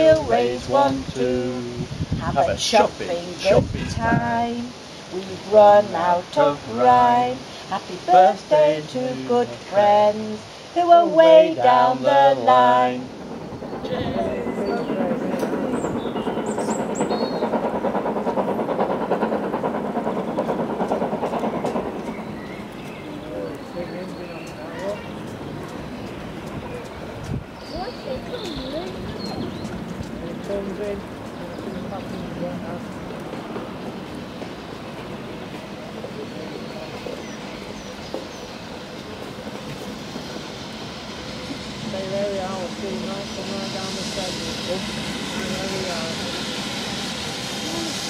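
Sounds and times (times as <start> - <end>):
steam locomotive exhaust beats: 3.3 - 48.0
bird chirps: 21.6 - 29.8.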